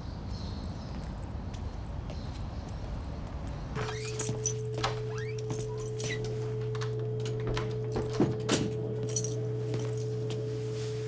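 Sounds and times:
low hum: 0:03.8 - 0:11.0.

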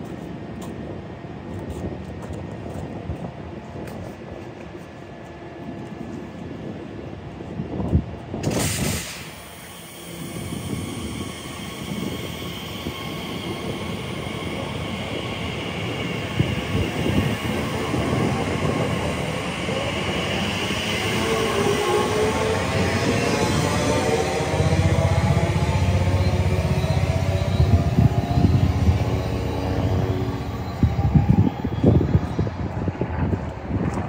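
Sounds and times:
wheel and rail noise: 0:09.2 - 0:34.0.

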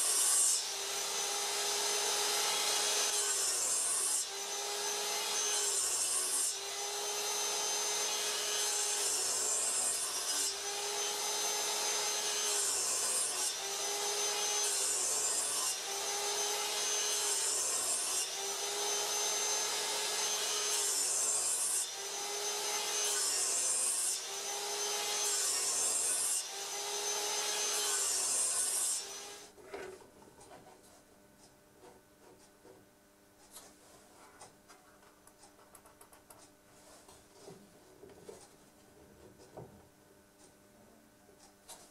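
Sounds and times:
saw blade cutting wood: 0:00.0 - 0:29.9.

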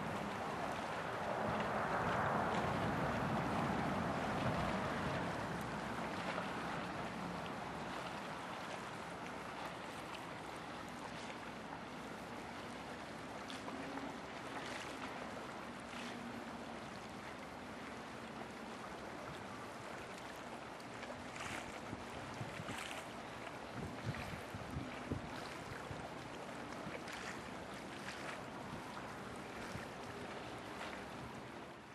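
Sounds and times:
river water rushing and lapping: 0:00.0 - 0:31.9.

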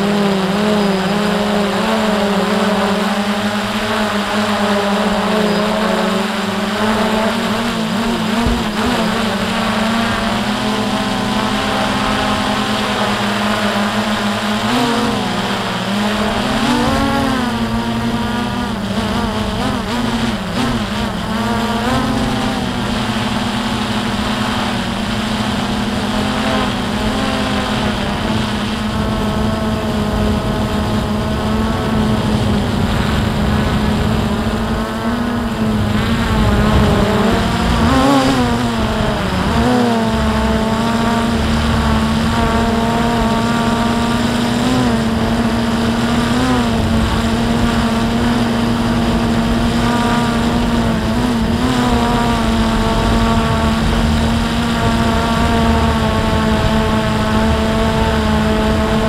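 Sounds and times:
drone propellers buzzing: 0:00.0 - 0:59.0.

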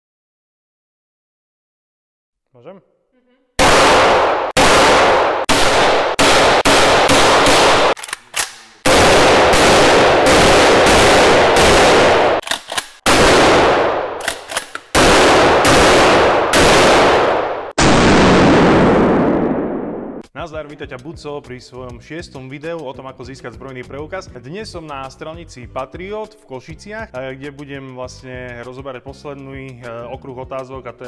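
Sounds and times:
gunshots with ringing tail: 0:03.6 - 0:08.0, 0:08.8 - 0:12.4, 0:13.0 - 0:14.2, 0:15.0 - 0:20.2.

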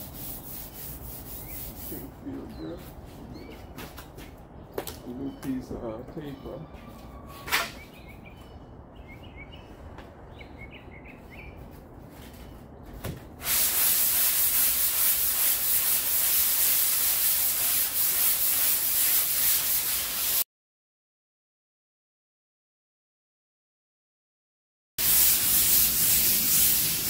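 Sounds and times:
hand sanding body filler: 0:00.0 - 0:03.0, 0:13.4 - 0:20.4, 0:25.0 - 0:27.0.

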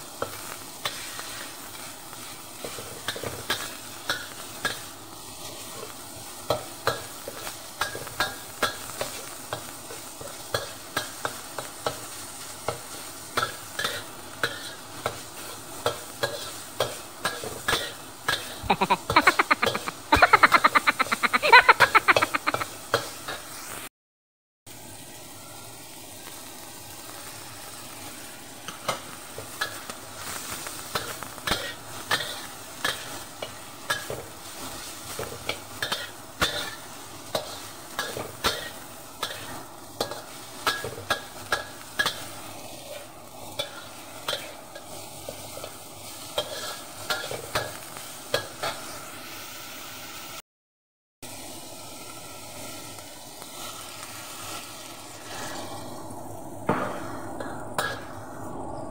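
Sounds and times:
food sizzling: 0:00.0 - 0:23.9, 0:24.7 - 0:50.4, 0:51.2 - 0:58.9
metal spatula scraping a wok: 0:00.2 - 0:23.8, 0:28.7 - 0:49.1, 0:53.5 - 0:55.9.

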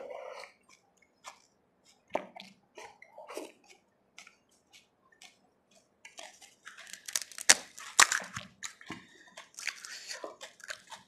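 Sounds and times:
crisp shell crunching and chewing: 0:00.5 - 0:11.0.

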